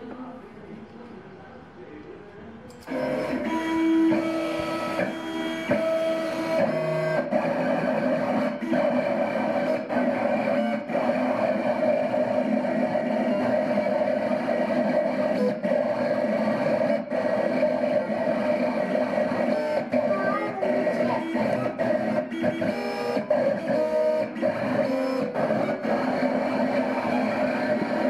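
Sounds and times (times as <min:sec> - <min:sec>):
stepper motors whining: 0:02.7 - 0:28.0.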